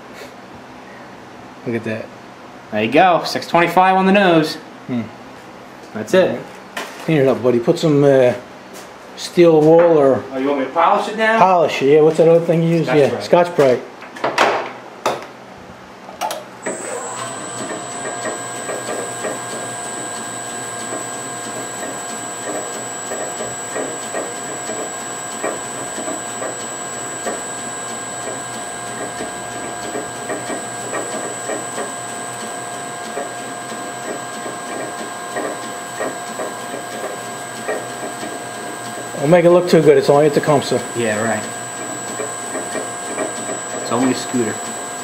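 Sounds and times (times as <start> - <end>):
metal lathe whining: 16.6 - 45.0.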